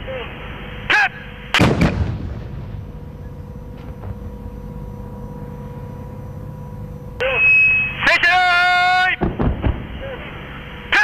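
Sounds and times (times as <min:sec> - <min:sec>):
rumble: 0:00.0 - 0:08.0, 0:09.2 - 0:11.0
howitzer firing boom: 0:01.6 - 0:04.4, 0:09.2 - 0:10.3.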